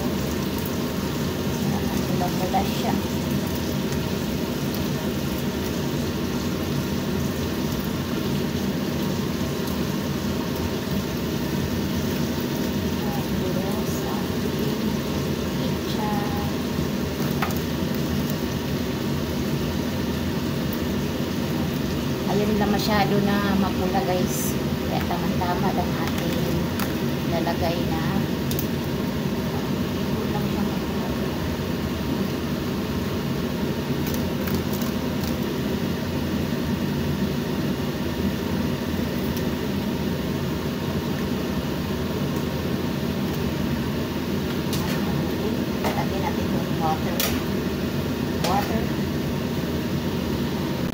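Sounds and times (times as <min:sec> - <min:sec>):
chicken simmering in frying pan: 0:00.0 - 0:50.9
machine humming: 0:00.0 - 0:50.9.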